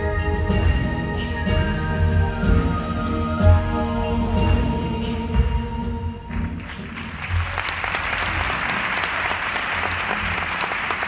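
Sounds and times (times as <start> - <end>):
music: 0.0 - 11.0
audience applauding: 6.4 - 11.0.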